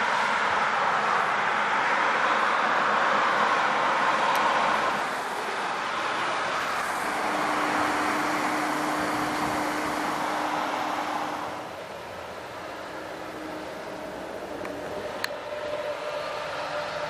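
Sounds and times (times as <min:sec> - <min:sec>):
highway traffic passing: 0:00.0 - 0:17.0
steady hum: 0:04.7 - 0:16.8.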